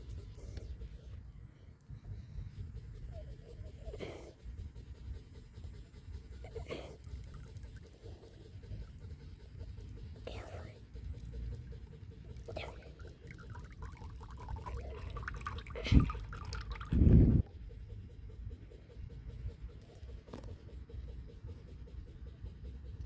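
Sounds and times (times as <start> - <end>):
water trickling and ticking: 10.2 - 17.1.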